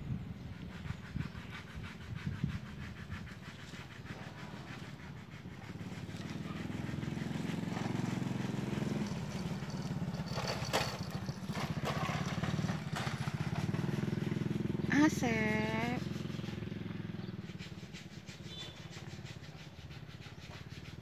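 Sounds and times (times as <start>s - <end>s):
vehicle engine running: 5.4s - 19.4s.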